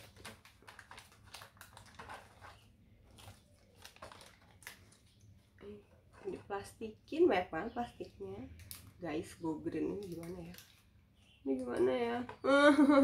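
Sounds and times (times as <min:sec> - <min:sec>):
plastic packaging crinkling: 0:00.0 - 0:06.4, 0:09.8 - 0:11.0.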